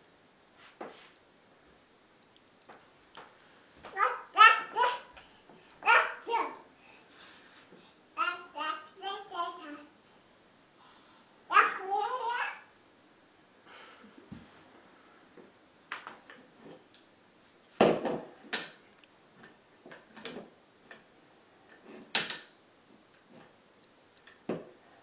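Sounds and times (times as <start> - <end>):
plastic bucket knocking on floorboards: 17.8 - 18.3.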